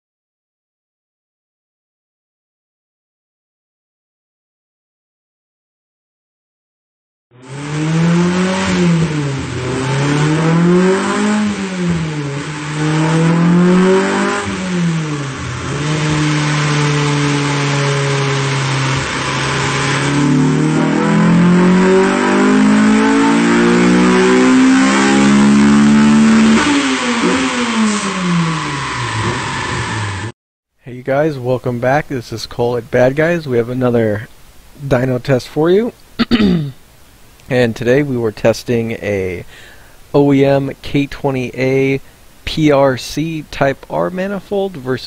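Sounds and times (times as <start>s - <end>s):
car engine revving: 7.4s - 30.3s.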